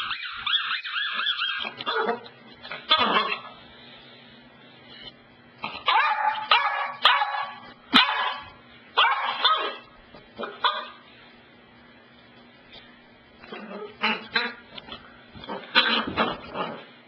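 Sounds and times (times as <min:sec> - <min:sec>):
puppy barking: 0:00.0 - 0:03.5, 0:05.7 - 0:11.0.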